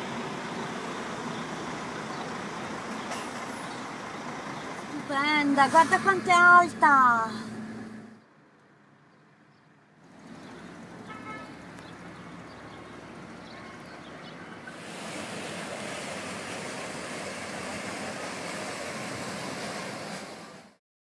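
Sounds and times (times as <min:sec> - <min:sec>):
road traffic noise: 0:00.0 - 0:20.8
boat passing rushing noise: 0:13.4 - 0:20.8.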